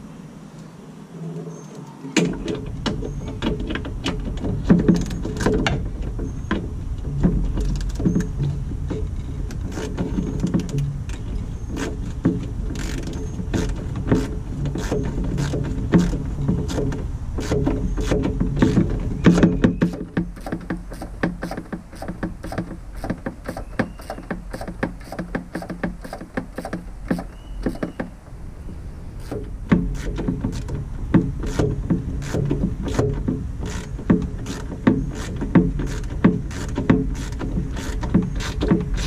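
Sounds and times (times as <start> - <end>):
hand tools clicking and knocking: 2.2 - 28.2, 29.2 - 39.0
steady low rumble: 26.8 - 39.0.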